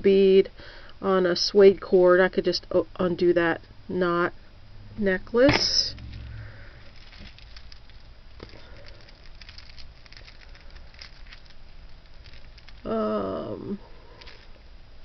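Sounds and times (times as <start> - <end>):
beads and chain clicking: 6.0 - 12.9, 14.1 - 14.6.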